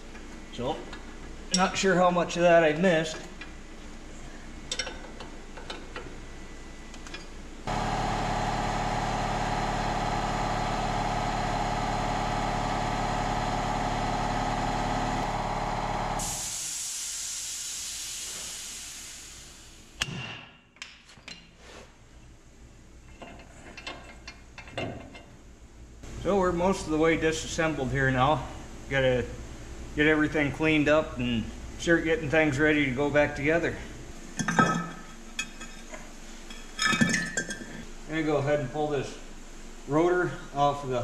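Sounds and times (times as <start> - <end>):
machine motor running: 7.7 - 16.4
hiss: 16.2 - 20.0.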